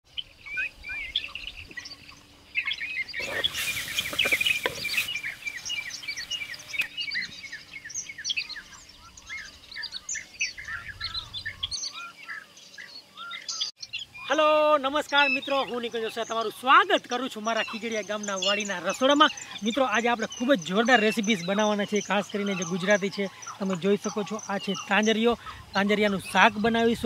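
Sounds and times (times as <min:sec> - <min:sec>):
small birds chirping: 0:00.1 - 0:27.0
rushing hiss: 0:03.2 - 0:06.9.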